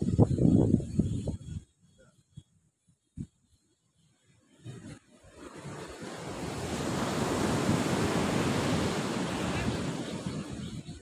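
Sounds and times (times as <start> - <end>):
wind on microphone: 0.0 - 2.5, 4.6 - 11.0
waves crashing on beach: 4.6 - 11.0.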